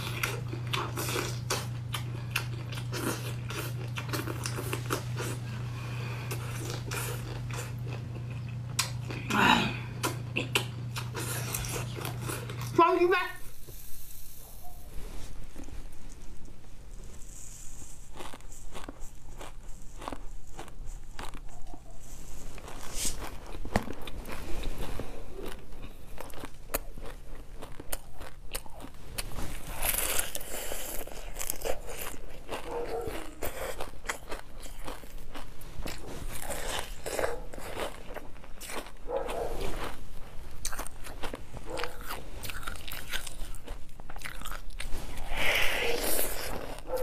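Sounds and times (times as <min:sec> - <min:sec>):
crunching and chewing food: 0:00.0 - 0:47.0.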